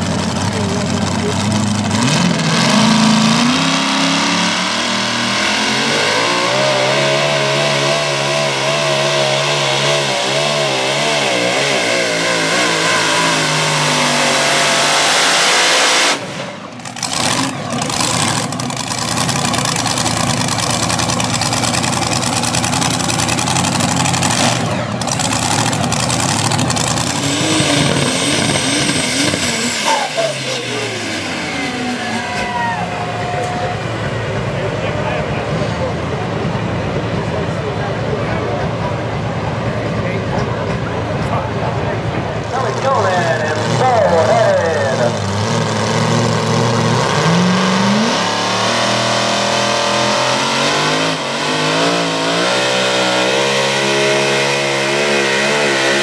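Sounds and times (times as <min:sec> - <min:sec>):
truck engine revving under load: 0:00.0 - 0:56.0.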